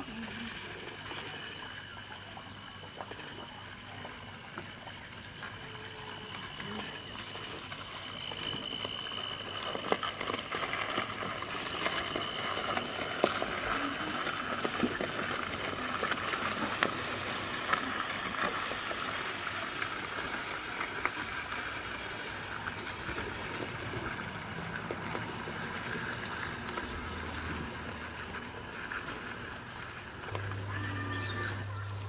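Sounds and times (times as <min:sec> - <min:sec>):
wheels clicking: 0:01.2 - 0:32.0
model train running on track: 0:05.6 - 0:28.7.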